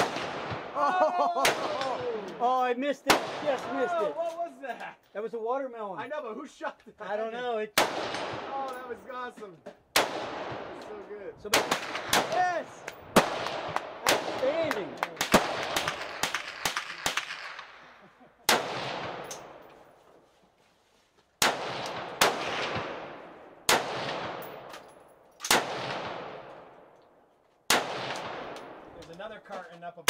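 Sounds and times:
rifle gunshots with echo: 0:00.0 - 0:00.8, 0:01.4 - 0:04.1, 0:07.8 - 0:09.3, 0:09.9 - 0:19.8, 0:21.4 - 0:27.0, 0:27.7 - 0:29.0.

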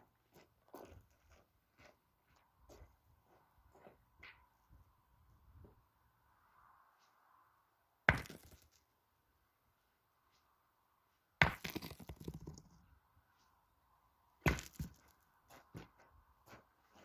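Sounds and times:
boules knocking and rolling: 0:11.4 - 0:12.9.

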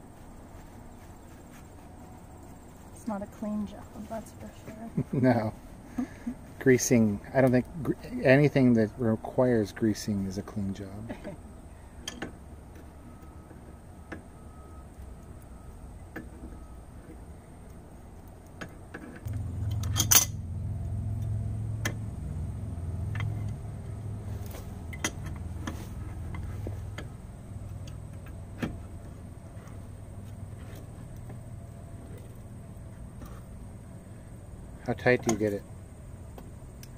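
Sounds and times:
low rumble: 0:19.3 - 0:26.2.

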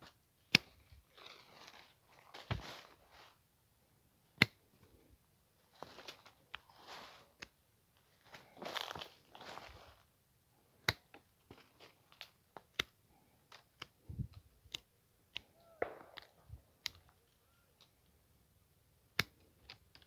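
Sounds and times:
branches rustling: 0:00.0 - 0:03.4, 0:05.6 - 0:10.1, 0:11.1 - 0:14.8
pruning shears snipping: 0:19.1 - 0:20.0.

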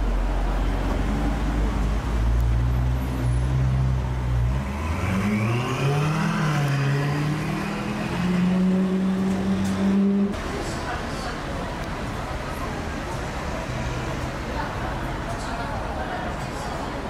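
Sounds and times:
sports car engine accelerating: 0:00.6 - 0:10.4.

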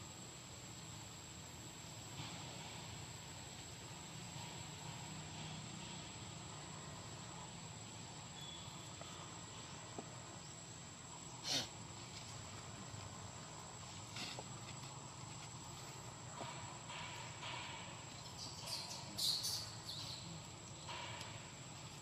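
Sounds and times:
faint high insect drone: 0:00.0 - 0:22.0.

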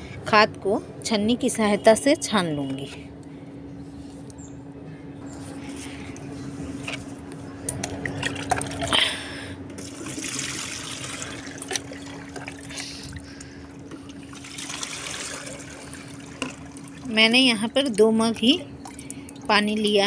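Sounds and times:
water splashing through strainer: 0:09.8 - 0:12.8, 0:14.2 - 0:17.1.

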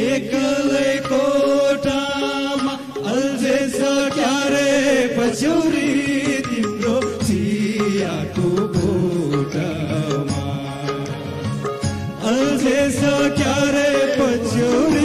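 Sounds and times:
men singing together: 0:00.0 - 0:15.0
guitar accompaniment: 0:06.4 - 0:15.0.

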